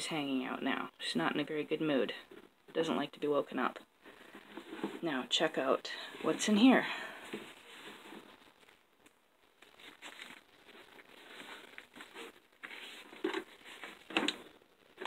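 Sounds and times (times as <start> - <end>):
bedding and ice pack rustling: 9.6 - 15.0.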